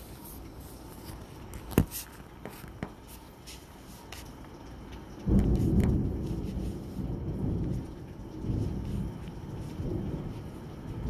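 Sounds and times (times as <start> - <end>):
storm background: 4.6 - 11.0.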